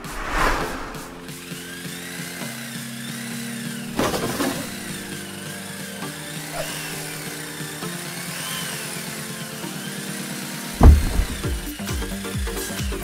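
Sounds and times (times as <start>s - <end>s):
background music: 1.2s - 13.0s
rubble crashing: 10.8s - 11.7s.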